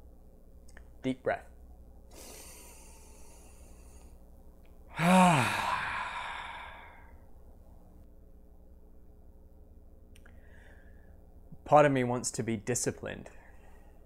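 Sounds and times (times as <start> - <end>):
man inhaling deeply: 2.1 - 4.2, 5.0 - 7.2, 10.3 - 11.2
man sighing loudly: 4.9 - 7.1.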